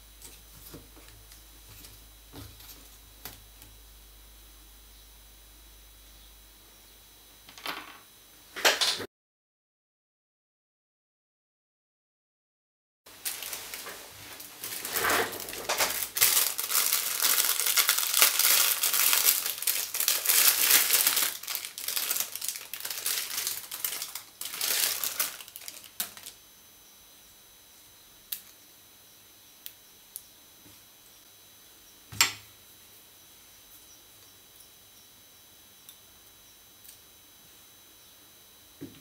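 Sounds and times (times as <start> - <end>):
plastic packaging crinkling: 13.1 - 26.4.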